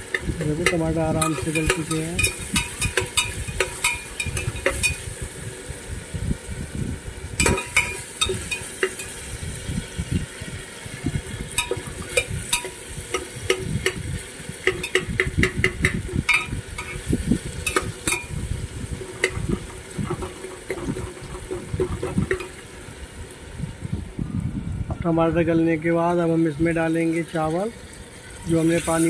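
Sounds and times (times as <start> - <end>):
food sizzling in oil: 0.0 - 24.2, 25.8 - 29.0
metal spoon scraping a pot: 0.1 - 5.0, 7.4 - 9.2, 11.6 - 14.0, 14.6 - 18.4, 19.0 - 22.6.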